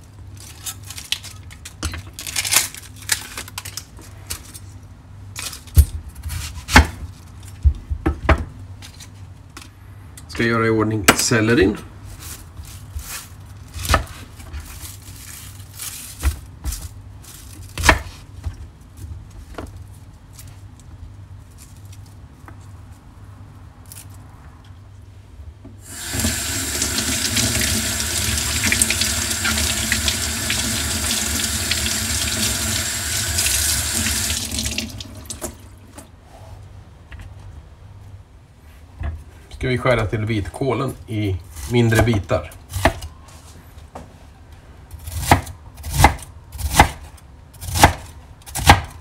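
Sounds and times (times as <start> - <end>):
tap water running into sink: 25.9 - 35.6.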